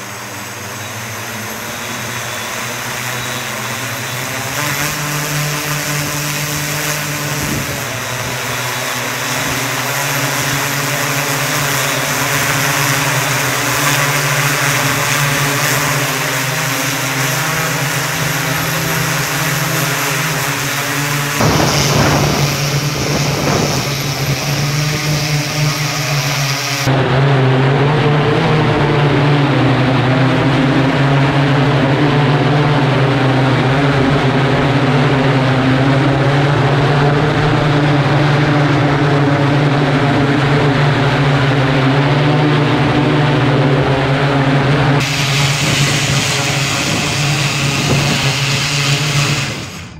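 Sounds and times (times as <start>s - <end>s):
propellers droning: 0.0s - 49.9s
high hiss: 45.0s - 49.9s.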